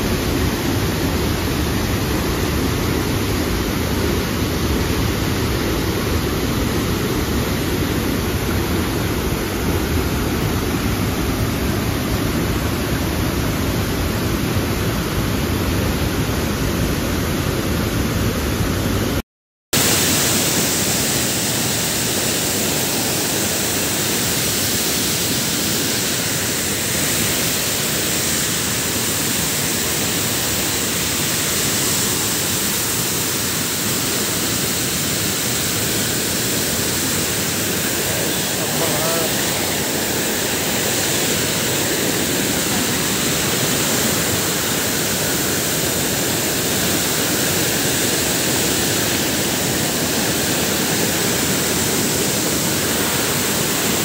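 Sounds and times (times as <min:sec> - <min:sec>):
waterfall rushing over rocks: 0:00.0 - 0:19.2, 0:19.8 - 0:54.0.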